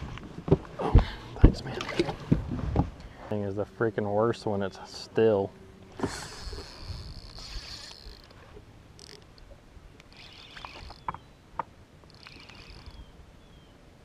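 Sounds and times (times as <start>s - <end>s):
fishing reel whirring: 6.0s - 8.4s, 9.0s - 9.4s, 10.0s - 11.2s, 12.0s - 13.1s.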